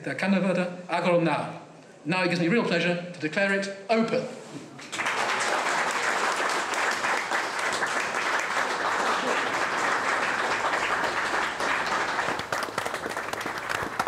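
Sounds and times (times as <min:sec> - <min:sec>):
crowd applauding: 0:04.8 - 0:14.0.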